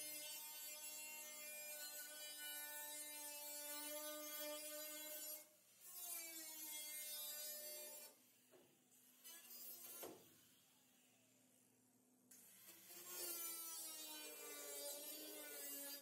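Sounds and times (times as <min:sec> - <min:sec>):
angle grinder cutting steel: 0:12.3 - 0:16.0.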